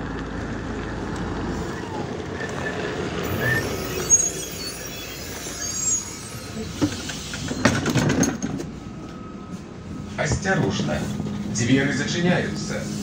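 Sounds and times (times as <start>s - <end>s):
bus engine and interior hum: 0.0s - 13.0s.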